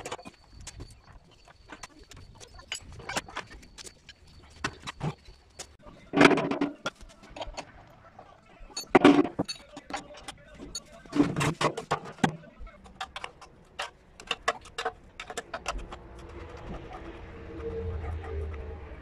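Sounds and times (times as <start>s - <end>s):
metal tools clinking on steel: 0.0s - 7.6s, 8.7s - 15.8s.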